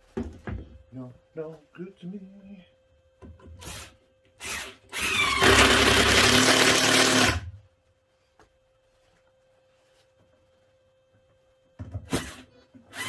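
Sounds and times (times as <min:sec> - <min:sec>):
cordless drill driving screw: 0:03.6 - 0:07.4.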